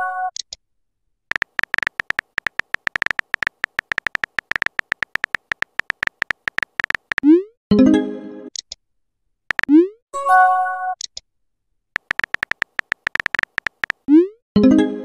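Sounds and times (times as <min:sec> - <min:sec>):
phone keyboard typing clicks: 0:01.3 - 0:07.3, 0:09.5 - 0:09.8, 0:12.0 - 0:14.1.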